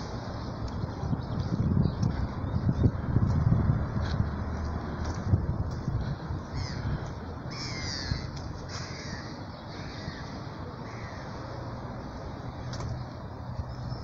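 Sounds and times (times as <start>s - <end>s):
steady low rumble: 0.0s - 11.0s
crows calling harshly: 6.5s - 11.6s.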